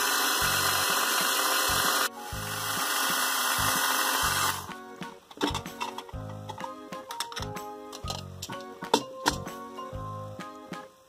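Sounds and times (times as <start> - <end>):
toy blender whirring: 0.0 - 4.7
background music: 0.0 - 11.0.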